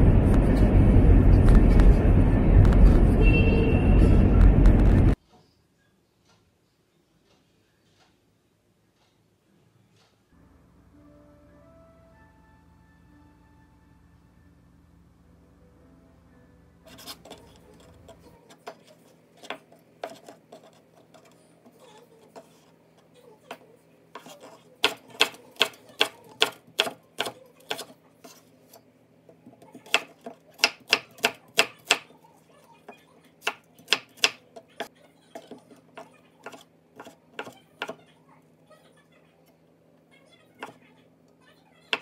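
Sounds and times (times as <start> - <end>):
knife chopping on wooden board: 18.5 - 21.3, 24.2 - 28.4, 29.4 - 32.1, 33.4 - 34.7, 35.4 - 38.0.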